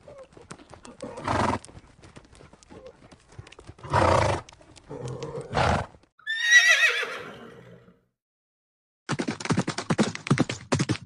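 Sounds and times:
horse hooves clip-clopping: 0:00.0 - 0:06.1, 0:09.1 - 0:11.0.

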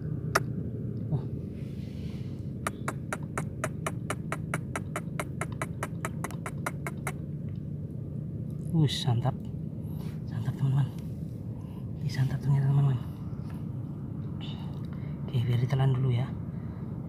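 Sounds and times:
low hum: 0:00.0 - 0:17.0
sharp rapid clicks: 0:02.7 - 0:07.2.

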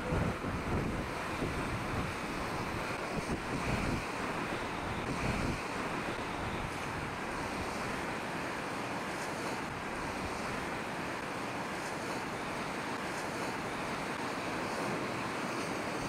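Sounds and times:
wind buffeting microphone: 0:00.0 - 0:08.2
rough sea: 0:00.0 - 0:16.0.

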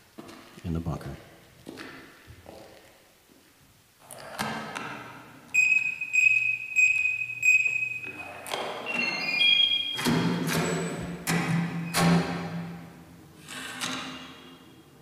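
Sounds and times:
high electronic beep: 0:05.5 - 0:11.0.

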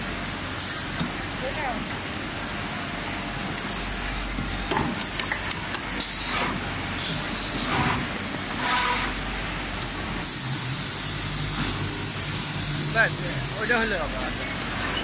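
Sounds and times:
factory machinery hum: 0:00.0 - 0:15.0
compressed air hiss: 0:10.2 - 0:14.1.

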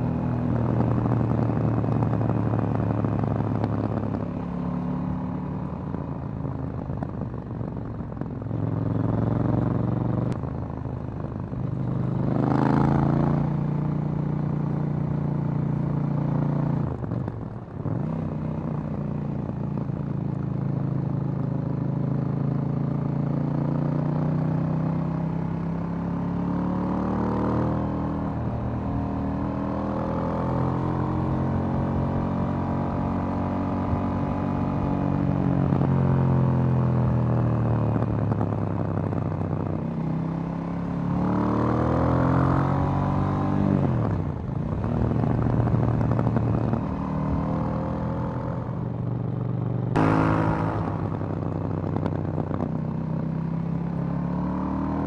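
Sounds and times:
motorcycle engine under way: 0:00.0 - 0:55.0.

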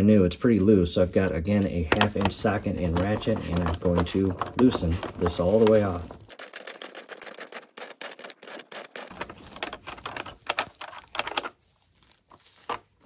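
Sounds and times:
metal clinks: 0:09.1 - 0:11.6.

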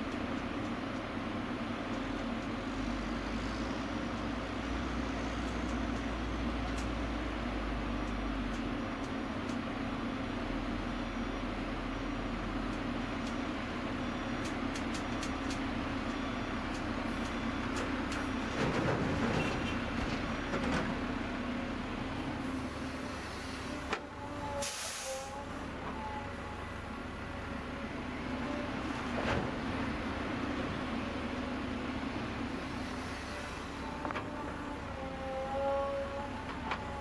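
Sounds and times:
excavator engine and hydraulics: 0:00.0 - 0:37.0
click: 0:14.4 - 0:18.2
sharp hiss of air: 0:24.6 - 0:25.3.

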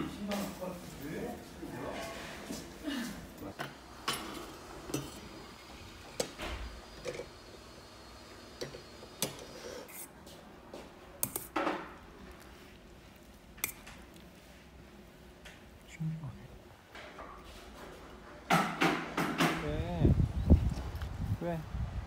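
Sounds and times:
low steady background noise: 0:10.0 - 0:21.8.

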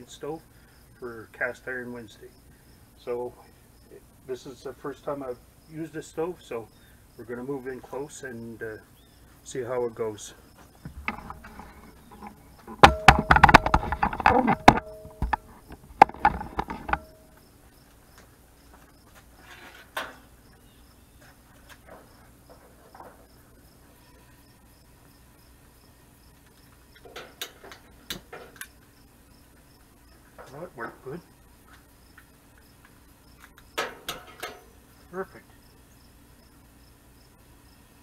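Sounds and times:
insects chirping: 0:00.0 - 0:38.0
camera handling knocks and scraping: 0:10.8 - 0:17.1.

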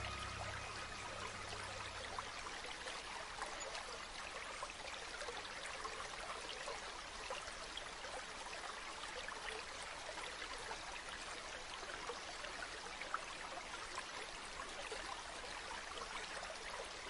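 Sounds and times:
river water rushing: 0:00.0 - 0:03.5.

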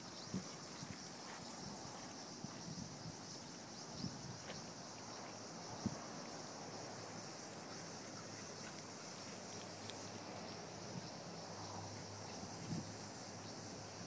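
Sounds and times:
faint outdoor hiss: 0:00.0 - 0:14.0
light ticks: 0:09.5 - 0:10.1.

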